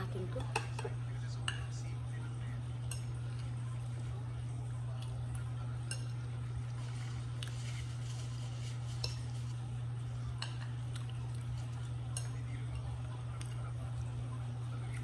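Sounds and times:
steady low hum: 0:00.0 - 0:15.0
fork clinking on a plate: 0:02.8 - 0:03.2, 0:05.8 - 0:06.2, 0:08.9 - 0:09.4, 0:10.4 - 0:10.7, 0:12.1 - 0:12.5.

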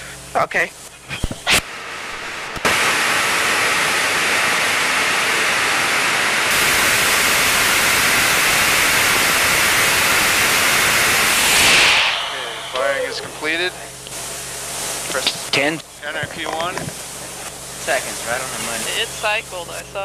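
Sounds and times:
rocket engine roaring: 0:01.6 - 0:14.6.

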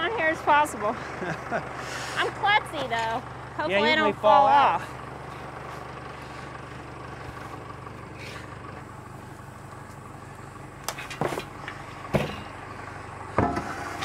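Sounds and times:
steady engine hum: 0:00.0 - 0:14.0.

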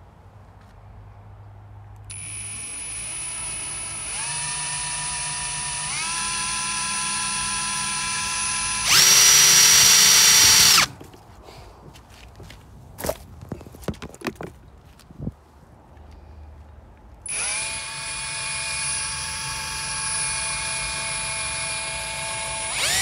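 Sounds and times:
cordless drill motor whine: 0:02.1 - 0:10.9, 0:17.2 - 0:23.0.

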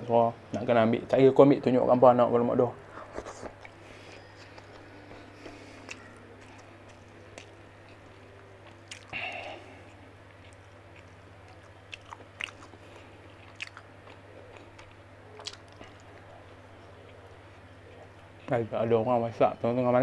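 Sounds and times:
steady low hum: 0:00.0 - 0:20.0
man chewing food: 0:02.9 - 0:18.5.

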